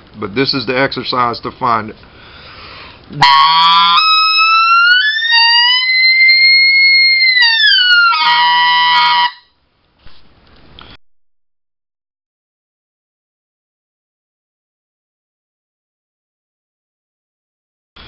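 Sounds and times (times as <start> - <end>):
goose call whistle: 3.2 - 9.5.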